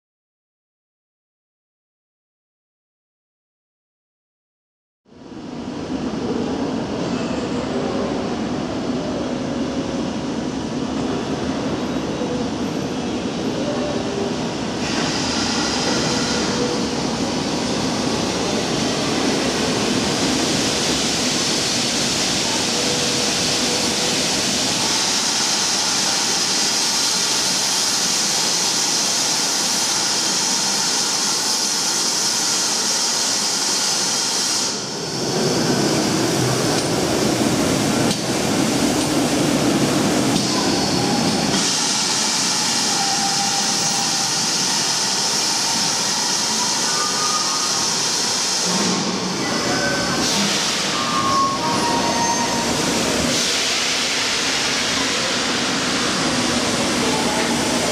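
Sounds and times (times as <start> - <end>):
steam hissing: 14.8 - 36.8, 37.5 - 57.9.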